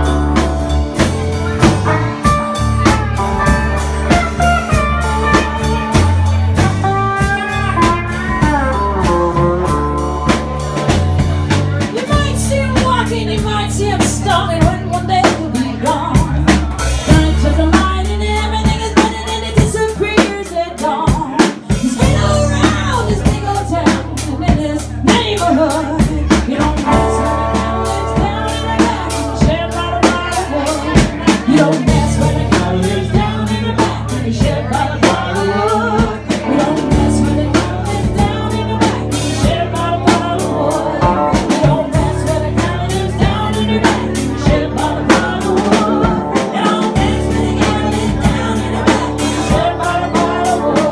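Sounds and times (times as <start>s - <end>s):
bass line: 0.0s - 50.9s
drum kit beat: 0.0s - 50.9s
woman singing: 2.8s - 50.9s.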